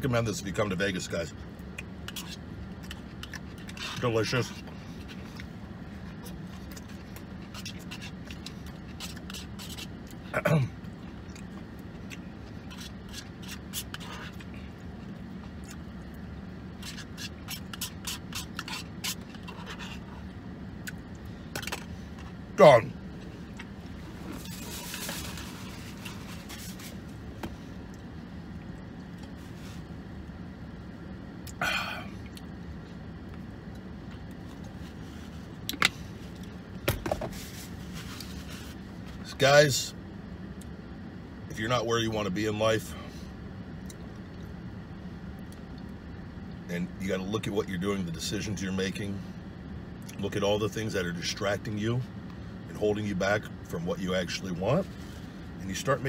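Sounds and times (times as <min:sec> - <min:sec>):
low hum in car cabin: 0:00.0 - 0:56.0
person chewing food: 0:01.8 - 0:03.9, 0:10.9 - 0:22.4.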